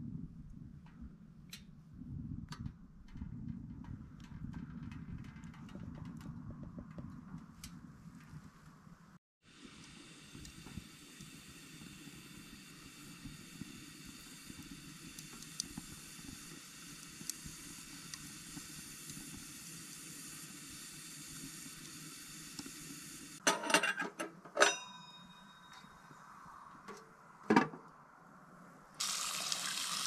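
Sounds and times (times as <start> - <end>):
wood fire hissing and crackling: 4.2 - 23.4, 29.0 - 30.0
metal clanks on stove top: 23.4 - 25.9.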